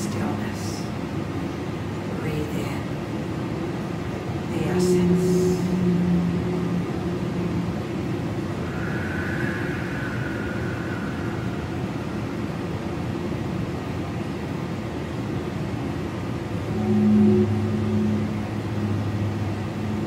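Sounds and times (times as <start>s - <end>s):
deep underwater rumble and hiss: 0.0s - 20.0s
high drawn-out whale call: 4.8s - 12.5s, 16.6s - 20.0s.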